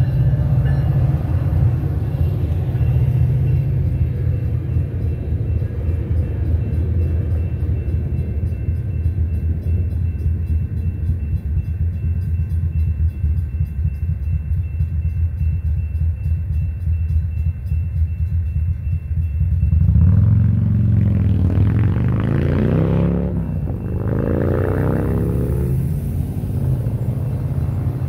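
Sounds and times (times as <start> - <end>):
idling traffic rumble: 0.0 - 28.0
railroad crossing bell ringing: 0.0 - 28.0
car engines pulling away: 19.8 - 28.0.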